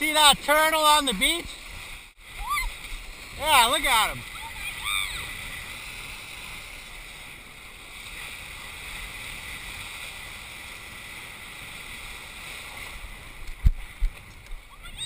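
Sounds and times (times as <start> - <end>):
board skimming water spray: 0.0 - 15.0
wind: 0.0 - 15.0.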